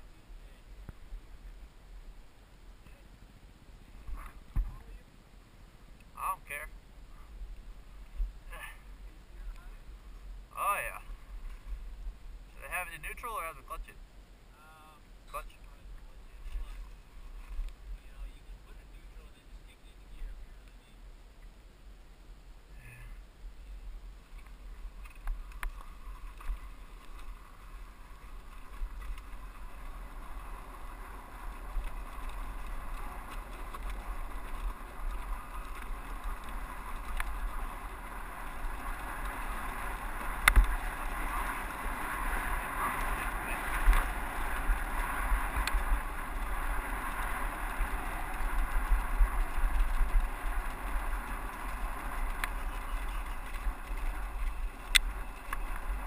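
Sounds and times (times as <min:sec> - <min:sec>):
wind rumble on microphone: 0:00.0 - 0:05.0, 0:05.6 - 0:56.0
dirt bike engine riding: 0:00.0 - 0:56.0
bike knocking over rocks: 0:24.4 - 0:56.0.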